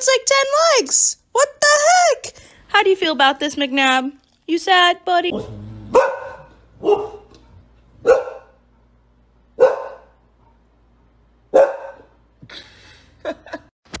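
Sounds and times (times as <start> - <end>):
dog barking: 5.4 - 8.6, 9.6 - 10.2, 11.5 - 12.2.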